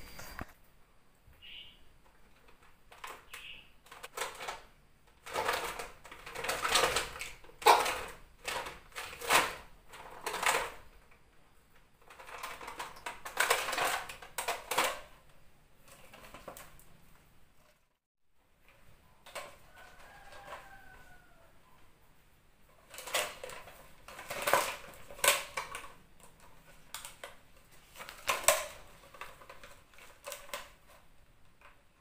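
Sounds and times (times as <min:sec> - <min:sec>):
plastic bottle crinkling and clattering: 0:02.2 - 0:11.1, 0:12.0 - 0:16.9, 0:22.7 - 0:31.8.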